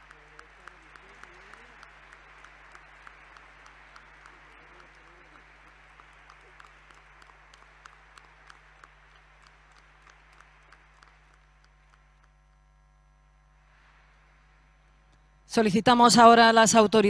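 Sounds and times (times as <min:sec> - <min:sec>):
crowd applause: 0:00.0 - 0:12.5.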